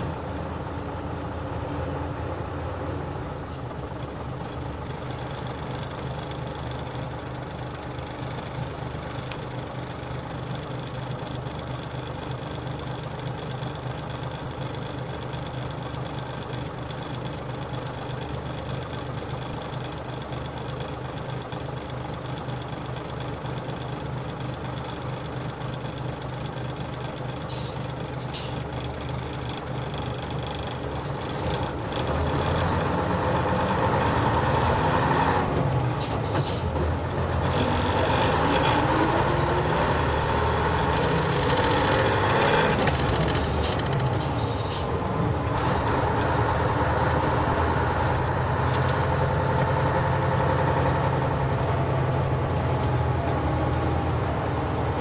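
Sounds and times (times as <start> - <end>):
bus diesel engine: 0.0 - 55.0.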